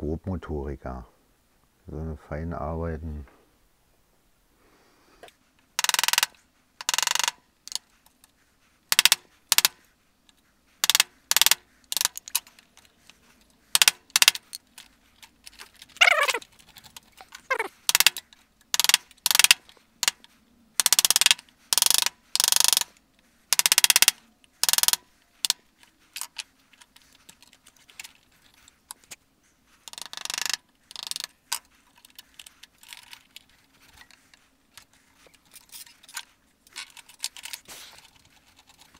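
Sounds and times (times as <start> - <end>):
hand tools scraping wood: 15.5 - 20.2
falling squeaks: 15.9 - 16.5, 17.1 - 17.8.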